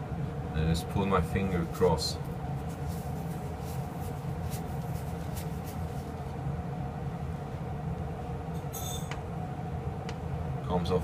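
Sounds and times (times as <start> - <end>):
steady low hum: 0.0 - 11.0
rubber glove rubbing metal: 2.2 - 6.4.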